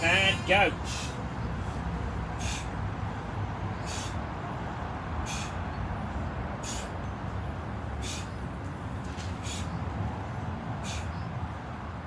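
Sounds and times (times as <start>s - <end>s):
person breathing out hard: 2.3s - 4.3s.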